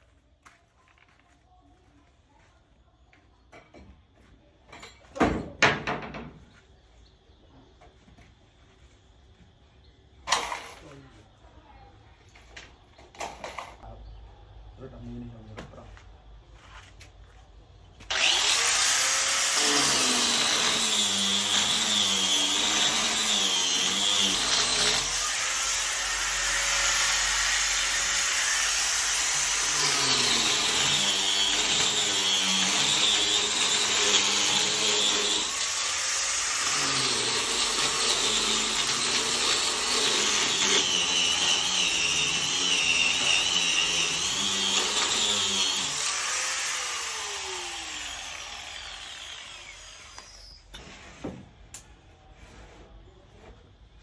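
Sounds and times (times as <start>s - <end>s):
power tool whining on wood: 18.0s - 51.2s.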